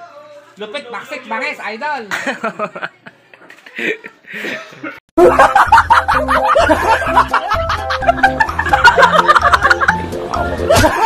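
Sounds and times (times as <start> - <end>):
people laughing: 2.1 - 10.0, 10.7 - 11.0
upbeat music with bass line: 5.2 - 11.0.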